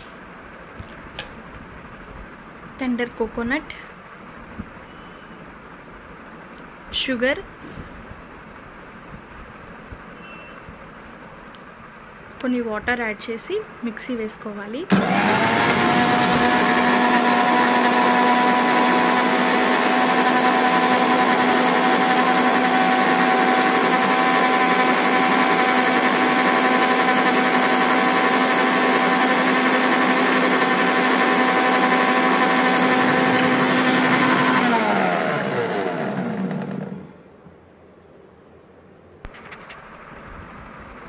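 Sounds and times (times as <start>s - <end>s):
mixer grinder motor running: 14.9s - 37.2s.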